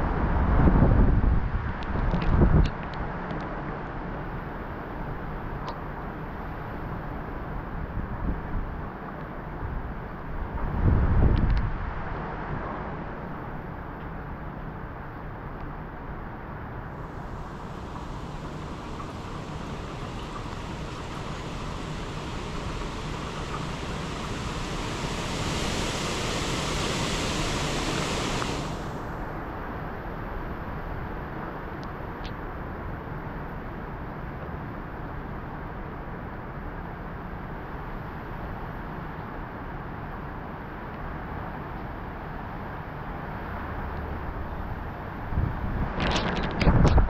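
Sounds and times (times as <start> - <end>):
strong wind gusting: 16.9 - 29.5.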